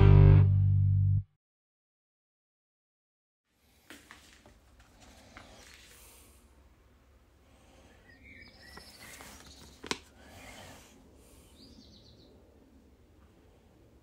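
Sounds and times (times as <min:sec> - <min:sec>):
paper sheet rustling: 0:08.7 - 0:10.1.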